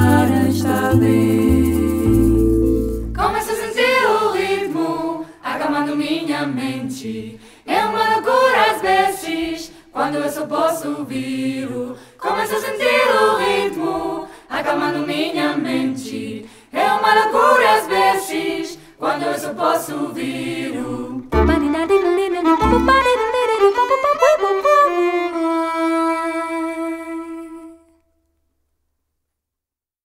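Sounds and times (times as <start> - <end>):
woman singing jazz: 0.0 - 2.2, 21.3 - 23.2.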